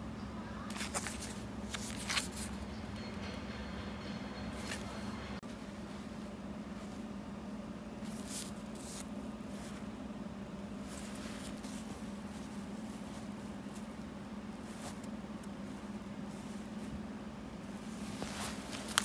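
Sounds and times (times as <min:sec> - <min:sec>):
steady low hum: 0:00.0 - 0:19.0
fabric rustling: 0:00.7 - 0:02.6, 0:08.0 - 0:19.0.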